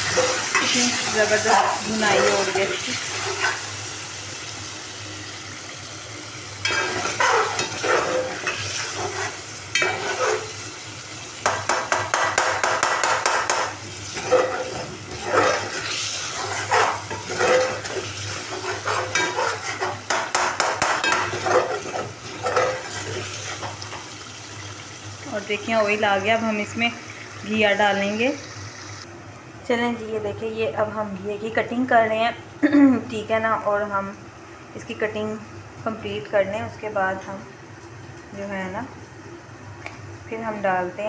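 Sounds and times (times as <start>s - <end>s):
chicken sizzling in oil: 0.0s - 29.1s
metal spatula scraping a pot: 6.7s - 10.5s, 12.2s - 23.6s.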